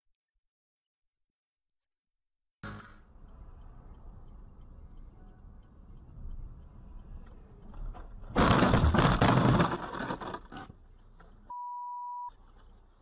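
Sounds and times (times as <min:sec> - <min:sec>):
road rumble: 0:03.0 - 0:11.5
short steady beep: 0:04.2 - 0:06.8, 0:11.5 - 0:12.4.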